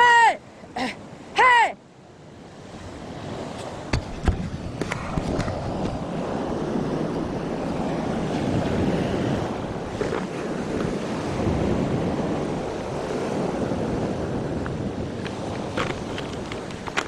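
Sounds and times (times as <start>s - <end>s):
sea waves washing: 0.0s - 17.0s
wind on microphone: 2.3s - 17.0s.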